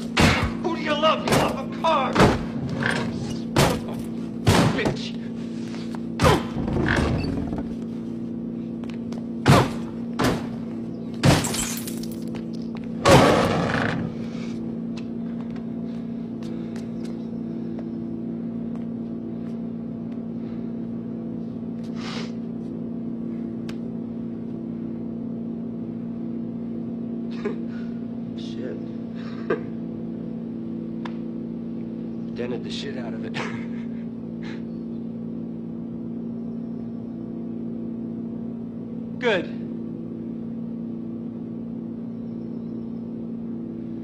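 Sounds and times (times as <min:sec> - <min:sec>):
steady low hum: 0:00.0 - 0:44.0
kicks against car bodywork: 0:03.5 - 0:05.1, 0:09.4 - 0:11.7.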